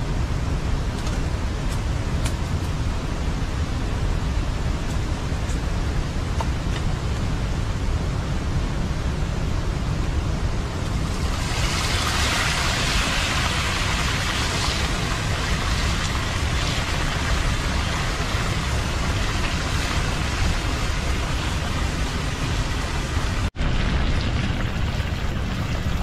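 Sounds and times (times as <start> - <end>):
low constant rumble: 0.0 - 26.0
vegetables sizzling in hot oil: 11.0 - 22.8.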